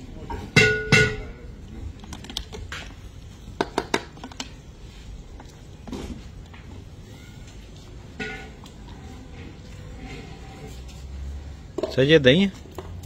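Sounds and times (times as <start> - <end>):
metal clanks against iron wok: 0.5 - 1.4.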